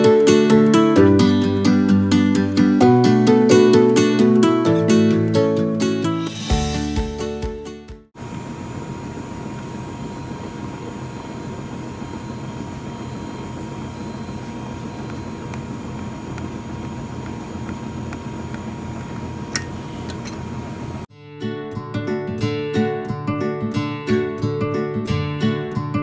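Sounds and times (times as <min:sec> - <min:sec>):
freezer motor drone: 0:08.2 - 0:21.1.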